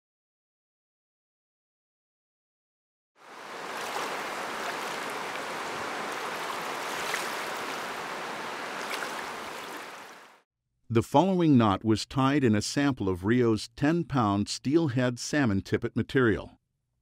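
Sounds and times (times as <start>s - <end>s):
rushing river rapids: 3.2s - 10.4s.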